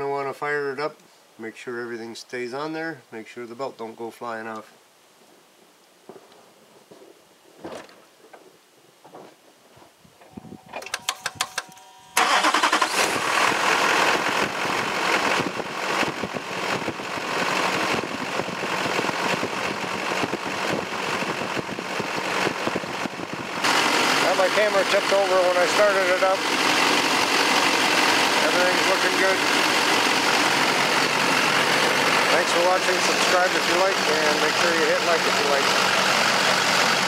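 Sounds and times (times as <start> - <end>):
starter cranking engine: 10.8 - 37.0
diesel engine idling: 12.2 - 37.0.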